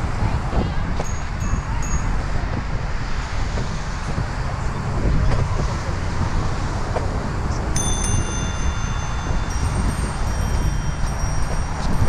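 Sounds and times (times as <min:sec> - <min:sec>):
wind on microphone: 0:00.0 - 0:12.0
bicycle bell ringing: 0:01.0 - 0:02.5, 0:07.8 - 0:12.0.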